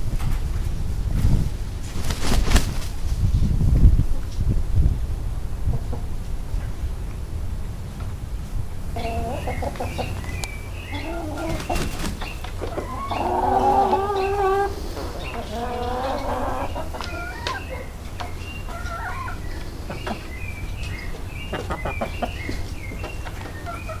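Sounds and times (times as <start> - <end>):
chickens clucking and chirping: 5.4 - 24.0.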